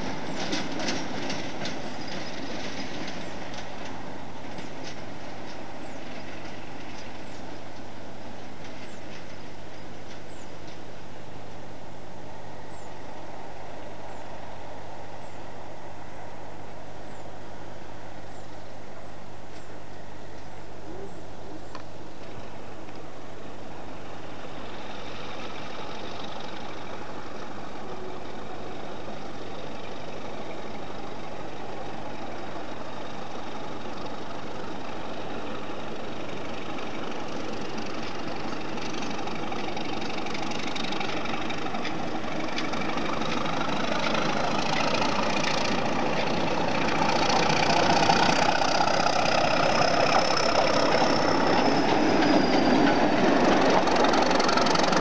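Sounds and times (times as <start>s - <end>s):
diesel locomotive engine running: 0.0s - 55.0s
thin high whine: 48.4s - 54.5s.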